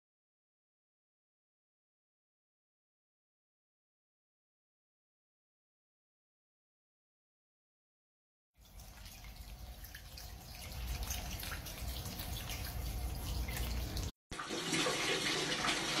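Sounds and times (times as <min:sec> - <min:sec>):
water drips and splashes: 0:08.6 - 0:16.0
water rumbling in floor drain: 0:08.6 - 0:16.0.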